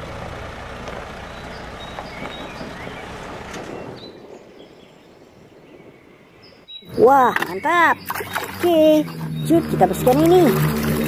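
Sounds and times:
diesel engine running: 0.0 - 3.9, 7.0 - 11.0.

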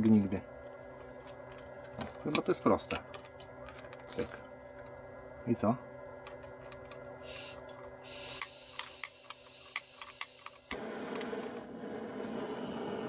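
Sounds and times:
gas hissing: 7.1 - 13.0
gas flame rushing: 7.2 - 13.0
igniter clicking: 8.3 - 11.3.

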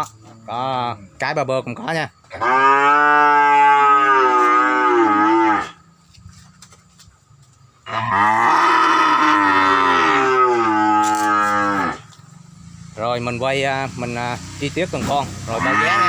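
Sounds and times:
cattle mooing: 2.4 - 5.8, 7.9 - 12.2, 15.5 - 16.0.

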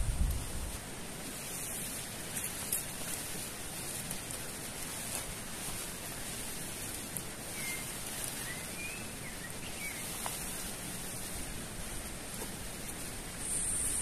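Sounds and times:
steady outdoor hiss: 0.0 - 14.0
tarp fabric rustling: 0.0 - 14.0
bird chirps: 7.5 - 10.3.

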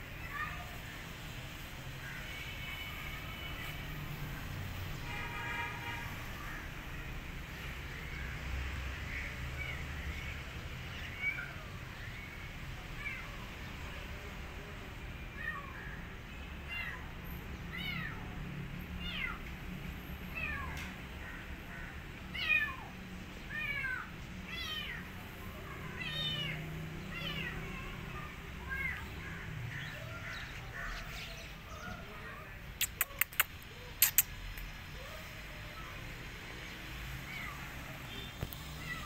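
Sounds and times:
kitten meowing: 23.5 - 25.1, 25.9 - 29.1.

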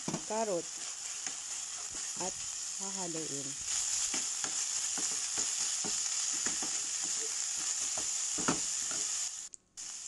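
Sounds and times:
food sizzling in frying pan: 0.0 - 10.0.

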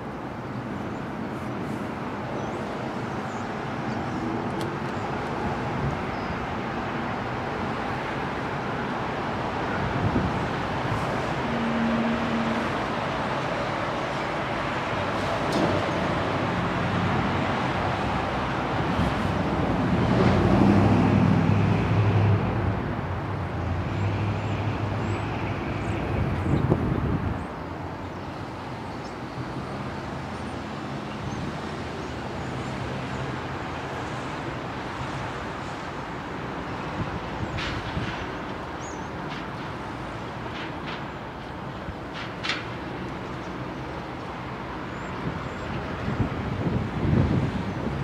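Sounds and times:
train engine rumble: 0.0 - 48.0.

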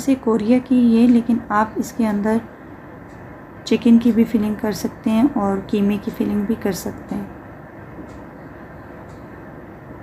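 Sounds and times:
low background hum: 0.0 - 10.0.

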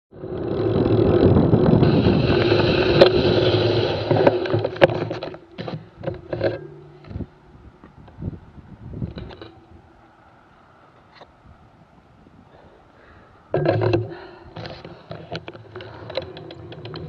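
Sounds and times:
wind on microphone: 0.1 - 10.1, 11.0 - 17.0
bicycle tyre rumble: 0.1 - 17.0
clicks and thumps: 0.4 - 8.2, 13.5 - 17.0.

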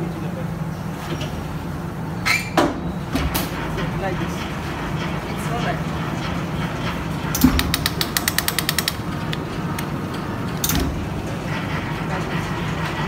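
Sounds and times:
steady low machine hum: 0.0 - 13.0
rapid mechanical clicking: 3.3 - 13.0.

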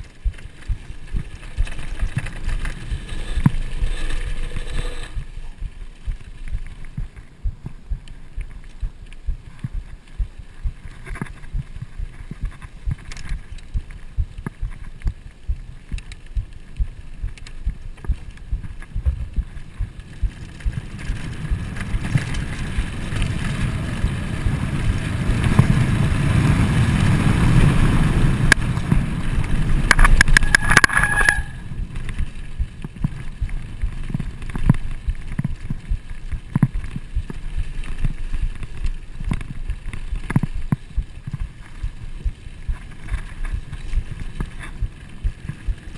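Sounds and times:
mountain bike rattling on dirt trail: 0.0 - 45.9
wind on microphone: 0.0 - 45.9
high squeal with ticking: 30.3 - 31.7.

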